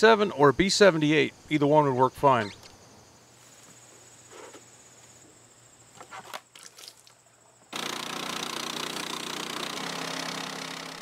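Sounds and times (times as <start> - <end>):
band sawmill cutting a log: 7.8 - 11.0.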